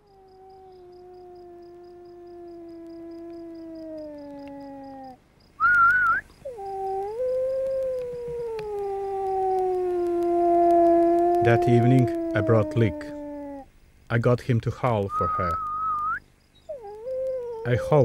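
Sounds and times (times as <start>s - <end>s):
wolf howling: 0.0s - 5.2s, 5.8s - 13.7s, 16.7s - 18.0s
wolf wavering cry: 0.0s - 5.2s, 5.9s - 13.7s, 16.7s - 18.0s.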